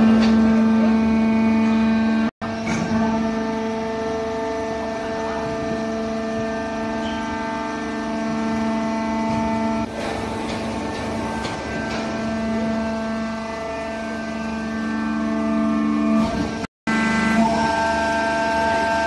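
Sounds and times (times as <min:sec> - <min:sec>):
baler machine whine: 0:00.0 - 0:19.0
sharp clicks and knocks: 0:09.3 - 0:12.3.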